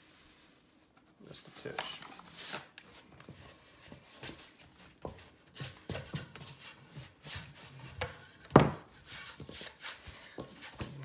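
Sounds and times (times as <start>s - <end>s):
spatula scraping dough in bowl: 2.4s - 11.0s.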